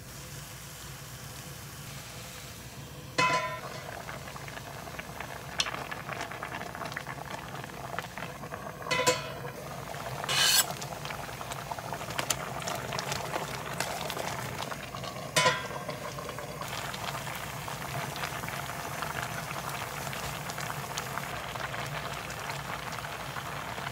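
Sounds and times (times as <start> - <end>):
sauce bubbling and sizzling: 0.0 - 23.9
utensil clinking on pan: 3.2 - 3.9, 8.9 - 9.4, 15.4 - 15.9.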